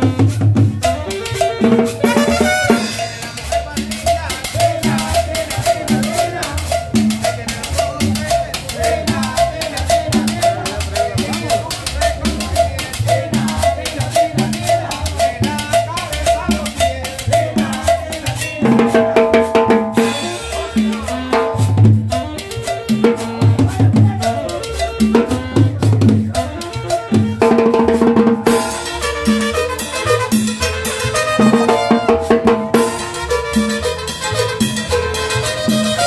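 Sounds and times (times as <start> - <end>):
saxophone: 0.0 - 3.6, 20.0 - 36.0
trumpet: 0.0 - 7.9, 12.5 - 36.0
drum kit and cymbal beat: 0.0 - 36.0
upright bass: 0.0 - 36.0
sustained horn notes: 1.2 - 3.4, 28.5 - 36.0.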